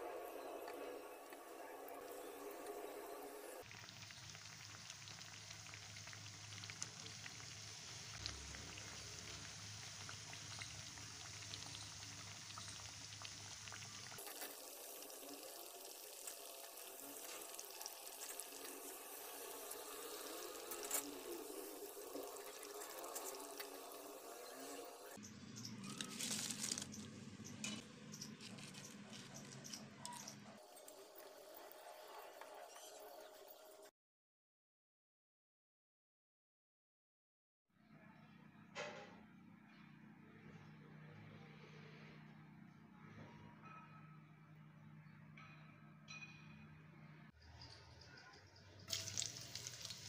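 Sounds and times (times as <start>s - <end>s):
deep-frying sizzle with crackles: 0.1s - 33.9s, 48.8s - 50.0s.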